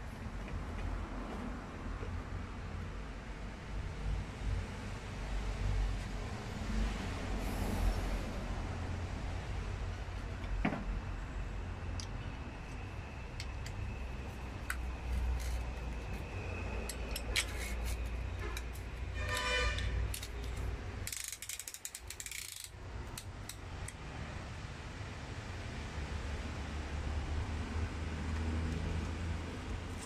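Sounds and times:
ratchet clicking: 0:14.7 - 0:15.8, 0:16.9 - 0:24.0
small metal clicks: 0:16.9 - 0:24.0.

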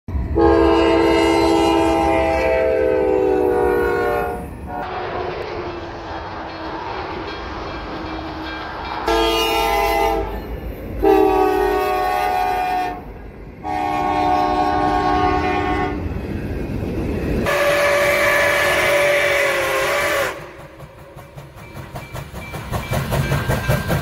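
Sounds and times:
train horn blasts: 0:00.3 - 0:05.4, 0:09.0 - 0:10.4, 0:11.0 - 0:16.1, 0:17.4 - 0:20.7
steam whistle blast: 0:00.4 - 0:05.3, 0:09.1 - 0:10.4, 0:11.0 - 0:13.0, 0:13.6 - 0:16.0, 0:17.4 - 0:20.6.

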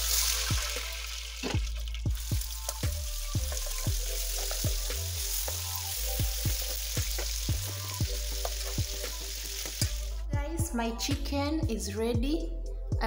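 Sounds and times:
oil sizzling in frying pan: 0:00.0 - 0:10.2
background music with beat: 0:00.0 - 0:13.0.

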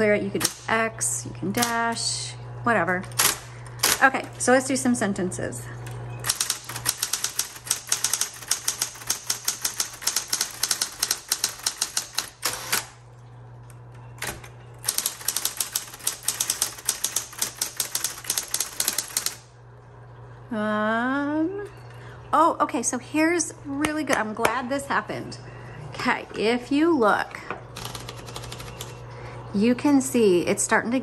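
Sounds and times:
typewriter motor humming: 0:00.3 - 0:02.2, 0:02.8 - 0:04.7, 0:05.8 - 0:13.0, 0:13.9 - 0:19.5, 0:27.8 - 0:29.0
typewriter type-bar strikes: 0:06.2 - 0:12.9, 0:14.2 - 0:19.4.

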